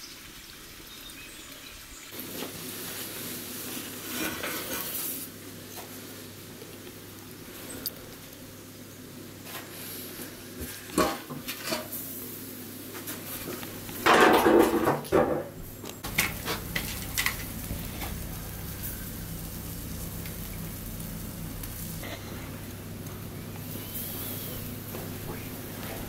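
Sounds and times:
loud noisy burst: 0:16.0 - 0:24.8.

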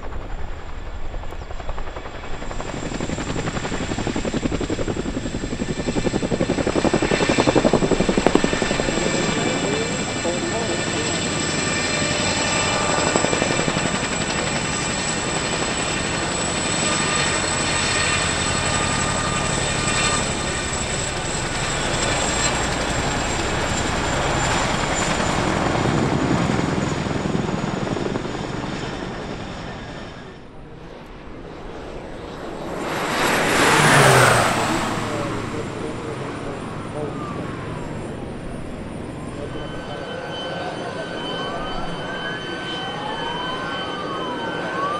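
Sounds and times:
helicopter rotor beat: 0:00.0 - 0:44.9
high turbine whine: 0:00.0 - 0:44.9
turboprop plane passing low: 0:00.0 - 0:44.9.

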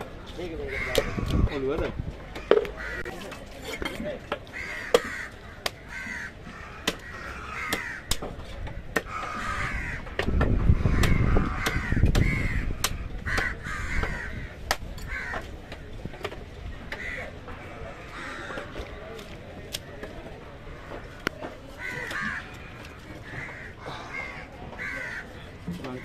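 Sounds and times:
crows cawing: 0:00.6 - 0:01.7, 0:02.4 - 0:03.2, 0:04.5 - 0:15.8, 0:16.9 - 0:18.8, 0:20.7 - 0:26.0.

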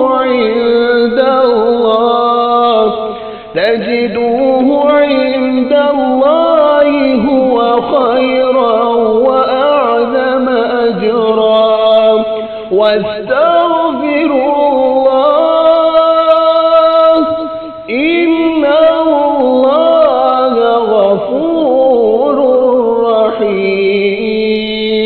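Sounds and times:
man chanting melodically: 0:00.0 - 0:25.0
man taking a breath: 0:03.1 - 0:03.6, 0:12.4 - 0:12.7.

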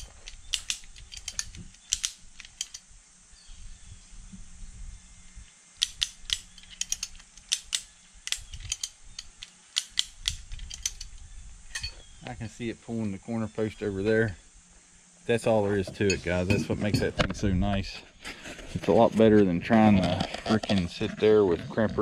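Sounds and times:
ratchet clicking: 0:00.0 - 0:02.9, 0:05.8 - 0:11.9.

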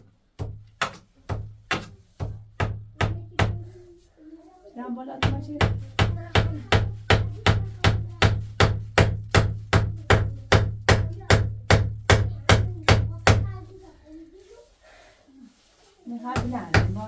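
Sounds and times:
hammering on wood: 0:00.0 - 0:03.8, 0:05.2 - 0:13.8, 0:16.3 - 0:17.0.

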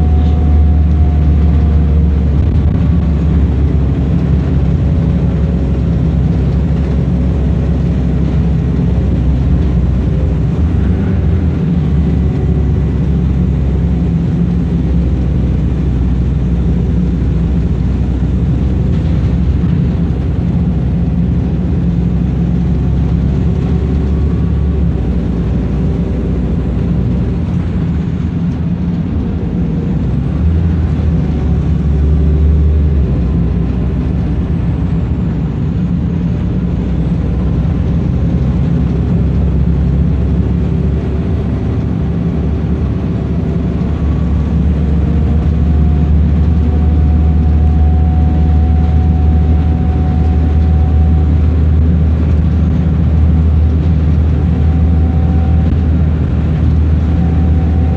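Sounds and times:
bus engine drone: 0:00.0 - 0:57.9
faint whine: 0:00.0 - 0:57.9
road and tyre noise: 0:00.0 - 0:57.9.

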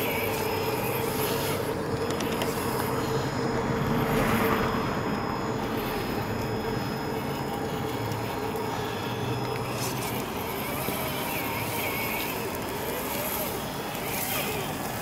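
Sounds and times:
toy car motor whining: 0:00.0 - 0:15.0.

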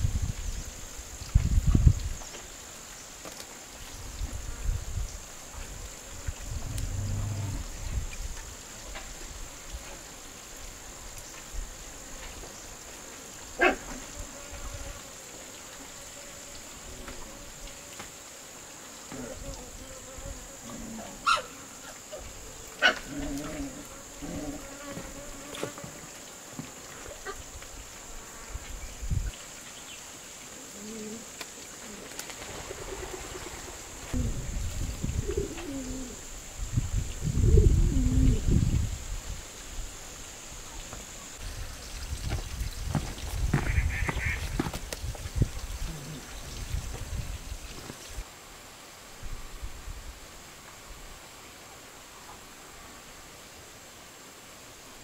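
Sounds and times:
high insect buzz: 0:00.0 - 0:48.3
low wavering animal calls: 0:06.5 - 0:07.9
bark-like animal call: 0:13.6 - 0:14.0, 0:21.0 - 0:22.2, 0:22.8 - 0:24.6.

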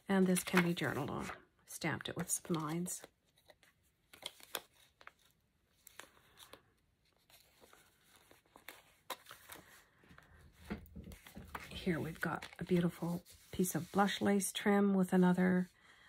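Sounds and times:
paper rustling and tapping: 0:10.6 - 0:13.2.

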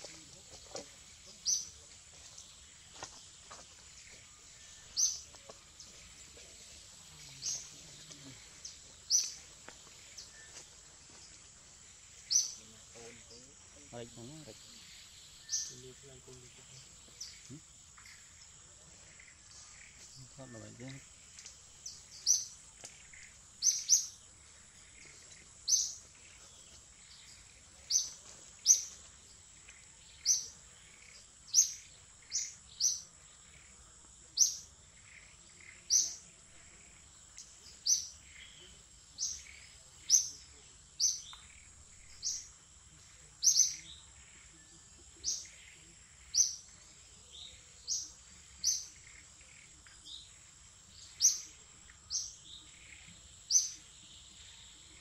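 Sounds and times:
bird chirping: 0:00.0 - 0:55.0
faint insect drone: 0:00.0 - 0:55.0.

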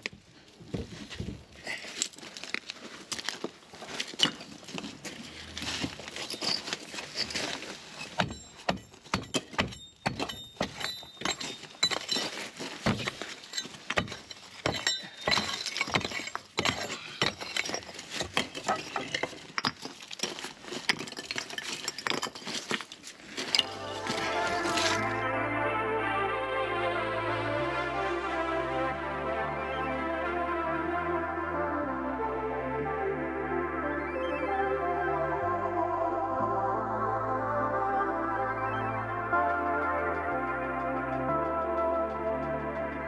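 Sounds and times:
concrete rubble clinking and knocking: 0:04.1 - 0:04.8, 0:05.9 - 0:23.7.

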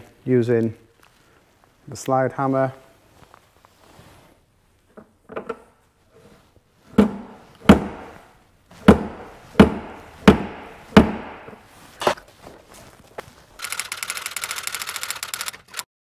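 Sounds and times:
fast even rattling: 0:13.6 - 0:15.8.

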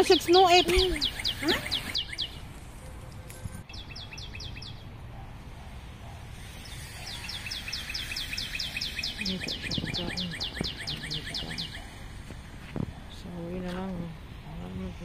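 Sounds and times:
songbird whistling runs: 0:00.1 - 0:02.4, 0:06.6 - 0:11.9.

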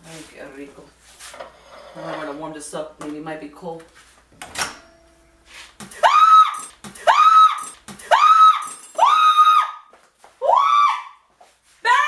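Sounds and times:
high-pitched voice screaming: 0:06.0 - 0:09.8.

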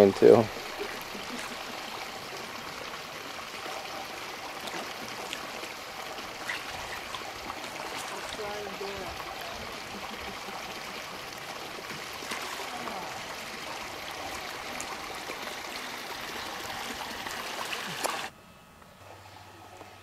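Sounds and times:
water rushing in swimming pool: 0:00.0 - 0:18.3
small water splashes: 0:00.5 - 0:18.3.

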